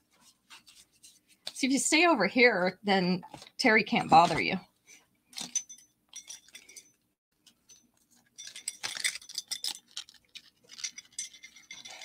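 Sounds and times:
metal earrings clinking: 5.3s - 7.0s, 7.6s - 12.0s.

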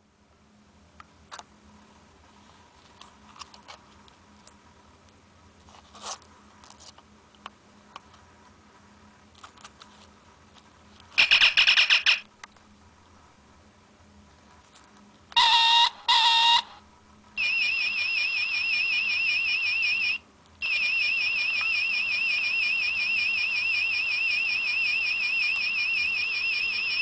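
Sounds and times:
warbling electronic chirp: 11.2s - 12.3s.

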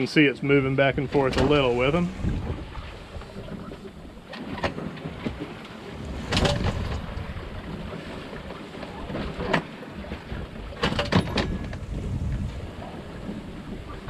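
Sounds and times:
water rushing past boat: 0.0s - 14.0s
wind rushing: 1.6s - 3.0s, 11.6s - 14.0s.

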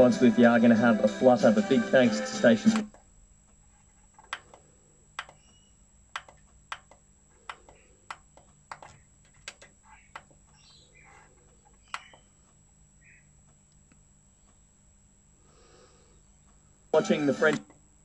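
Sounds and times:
faint hum: 0.0s - 18.0s
receiver buttons clicking: 4.2s - 10.8s, 11.6s - 12.3s
faint chirps: 5.2s - 5.9s, 7.4s - 9.1s, 9.8s - 13.4s.

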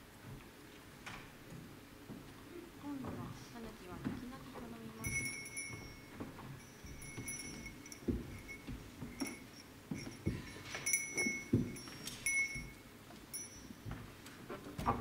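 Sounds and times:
small hand bell ringing: 5.0s - 14.0s.

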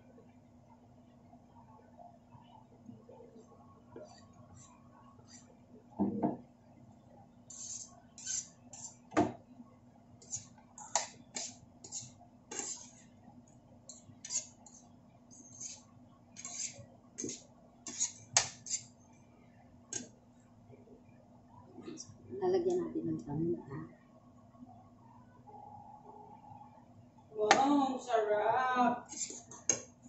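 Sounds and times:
metal spoon scraping frying pan: 7.5s - 9.0s, 11.4s - 13.0s, 13.9s - 15.8s, 16.4s - 18.9s, 29.1s - 29.8s.

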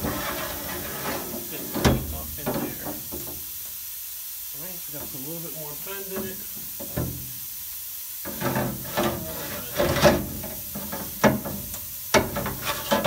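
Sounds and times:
steel tubes knocking on metal: 8.3s - 13.0s.

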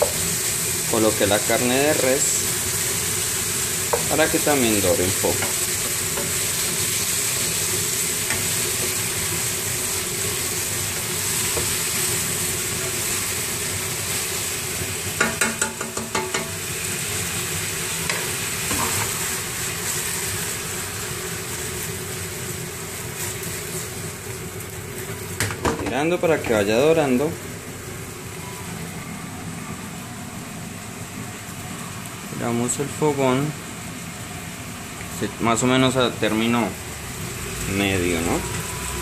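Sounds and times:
meat sizzling in oil: 0.0s - 39.0s.

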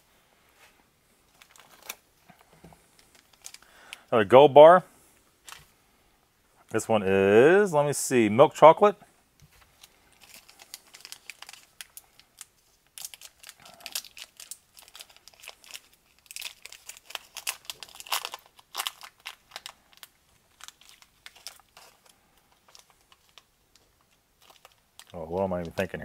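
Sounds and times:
wrapper and foil crinkling: 1.3s - 2.0s, 3.0s - 4.0s, 9.8s - 26.0s.

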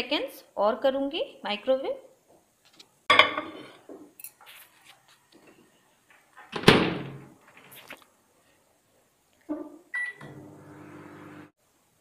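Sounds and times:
ceramic dishware clinking: 3.1s - 3.6s.

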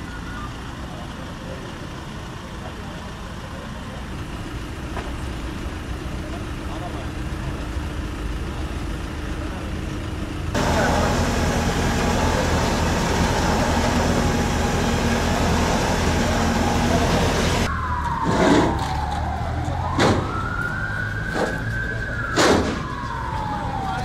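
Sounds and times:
engine hum: 0.0s - 24.0s
street noise: 0.0s - 24.0s
emergency siren wailing: 10.5s - 24.0s.

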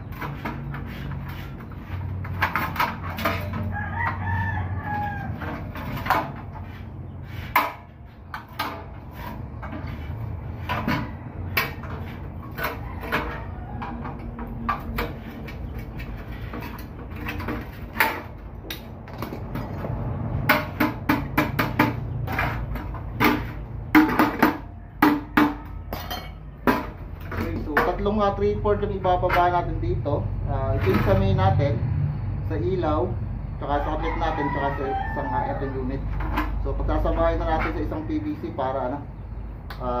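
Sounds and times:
metal enclosure clanking: 0.0s - 4.3s, 4.9s - 31.5s.

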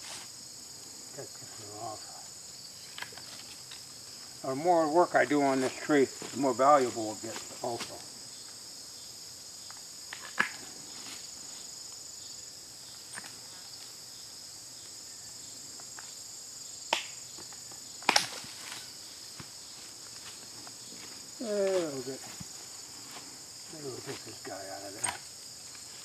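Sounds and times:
high-pitched insect chorus: 0.0s - 26.0s
branches snapping: 16.9s - 19.5s.

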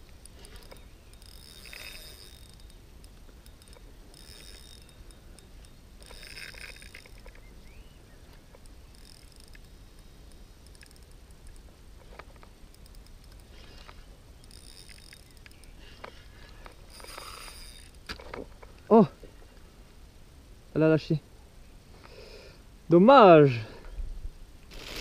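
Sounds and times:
fishing reel drag buzzing: 0.2s - 18.3s, 24.7s - 25.0s.

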